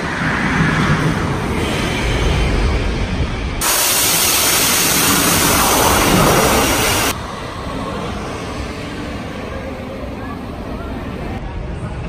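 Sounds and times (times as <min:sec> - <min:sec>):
low rumble: 0:00.0 - 0:09.0
compressed-air launch hiss: 0:03.6 - 0:07.2.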